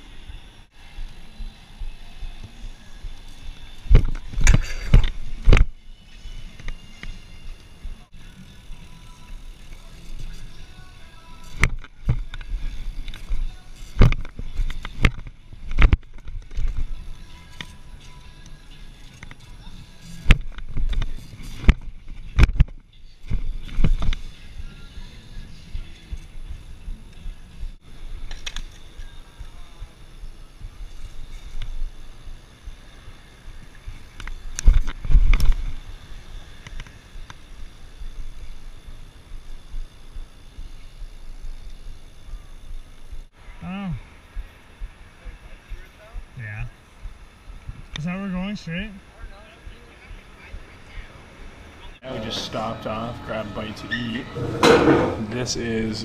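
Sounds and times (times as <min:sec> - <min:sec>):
bike knocks and clatters: 0:11.4 - 0:17.0, 0:20.2 - 0:24.3, 0:54.4 - 0:55.3.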